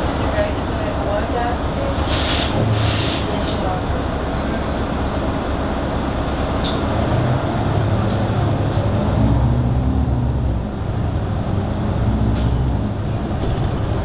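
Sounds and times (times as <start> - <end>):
bus engine drone: 0.0 - 14.0
road noise: 0.0 - 14.0.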